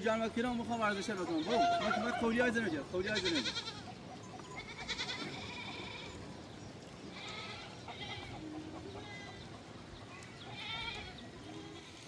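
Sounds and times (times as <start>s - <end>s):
goats or sheep bleating: 0.9s - 6.3s, 7.1s - 9.6s, 10.4s - 12.0s.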